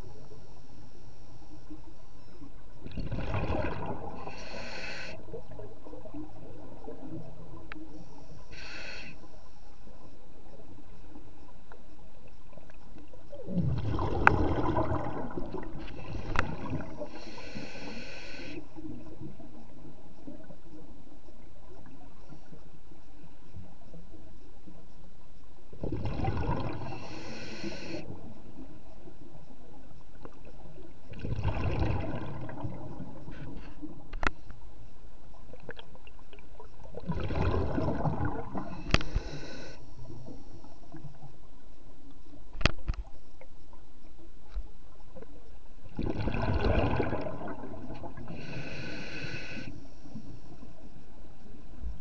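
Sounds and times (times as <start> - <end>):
diver breathing through regulator: 4.2 - 5.2, 8.4 - 9.3, 15.8 - 18.7, 26.7 - 28.1, 38.6 - 40.0, 48.2 - 50.2.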